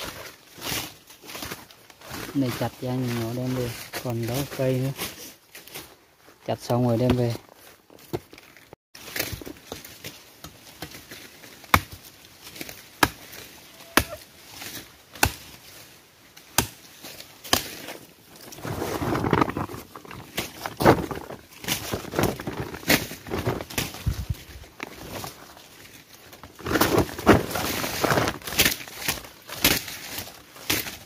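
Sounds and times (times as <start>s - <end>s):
machete chopping plant stem: 12.6s - 13.4s, 15.1s - 15.6s, 16.5s - 16.8s, 17.4s - 18.0s, 28.4s - 29.9s
rustling handling: 17.9s - 31.0s.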